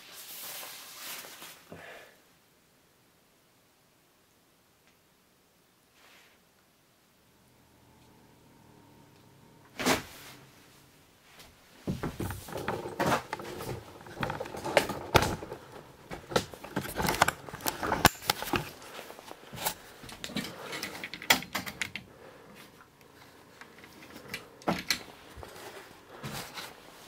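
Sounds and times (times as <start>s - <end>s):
rustling: 0.0s - 1.7s, 5.9s - 6.6s, 9.0s - 27.0s.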